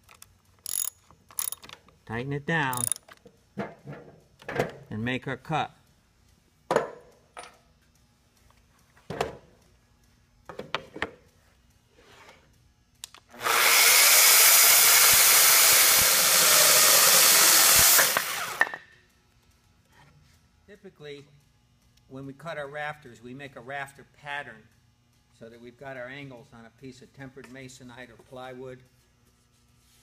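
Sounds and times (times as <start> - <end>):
electric chainsaw cutting timber: 13.3 - 18.8.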